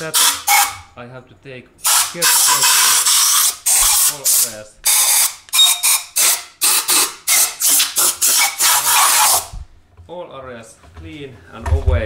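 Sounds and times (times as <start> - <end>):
compressed-air blow gun hissing: 1.8 - 5.3, 6.2 - 9.5.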